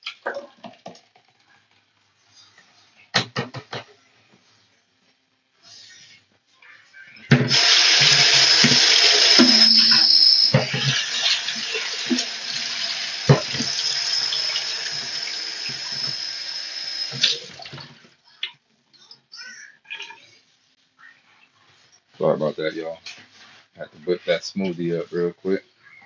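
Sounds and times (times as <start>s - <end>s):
blender running: 7.3s - 17.5s
contents knocking in blender: 7.4s - 16.3s.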